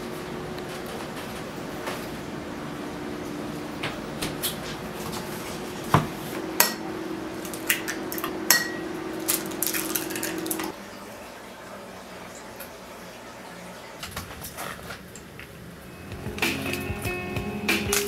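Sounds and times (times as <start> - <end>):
steady low hum: 0.0 - 11.1
eggs cracking against glass: 9.2 - 10.7.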